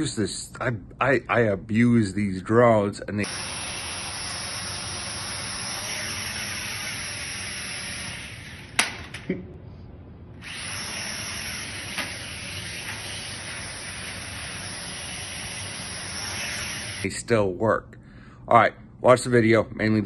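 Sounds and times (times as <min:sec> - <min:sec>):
toy drone propellers buzzing: 0:03.2 - 0:08.9, 0:10.4 - 0:17.1.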